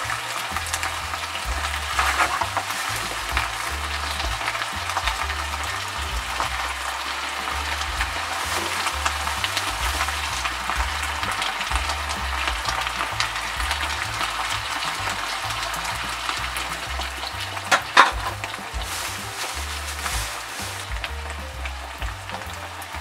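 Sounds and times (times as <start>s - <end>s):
food sizzling in a frying pan: 0.0s - 23.0s.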